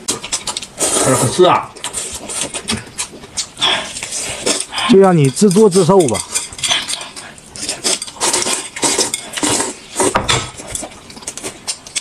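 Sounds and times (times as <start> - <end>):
utensils clattering on dishes: 4.1 - 12.0.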